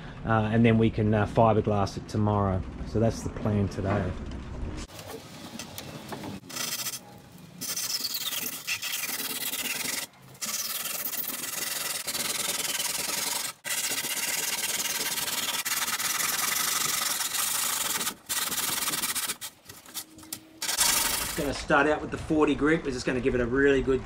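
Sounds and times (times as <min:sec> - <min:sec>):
blade rasping through foam: 0:06.4 - 0:21.5.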